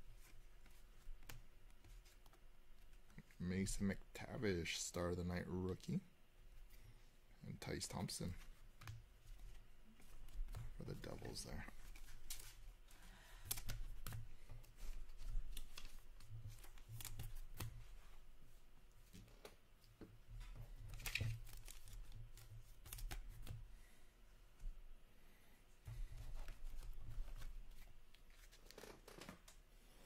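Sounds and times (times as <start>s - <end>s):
cards rustling and sliding: 8.3s - 12.7s, 13.4s - 18.0s, 20.9s - 23.6s.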